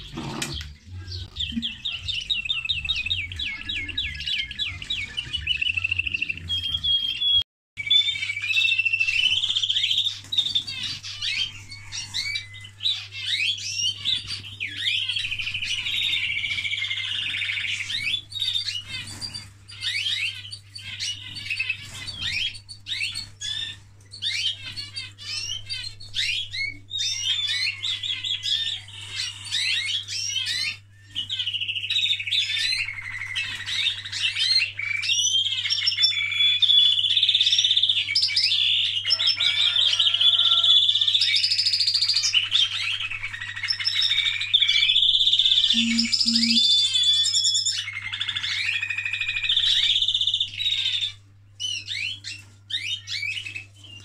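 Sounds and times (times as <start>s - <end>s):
finches singing with trills: 40.6s - 54.0s.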